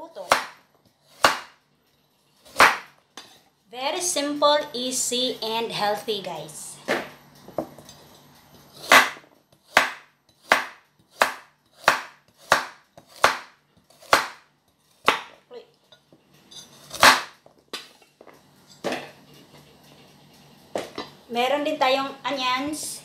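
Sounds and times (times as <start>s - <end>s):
knife chopping carrot on board: 0.2s - 1.5s, 2.5s - 2.9s, 8.8s - 14.4s, 15.0s - 15.3s.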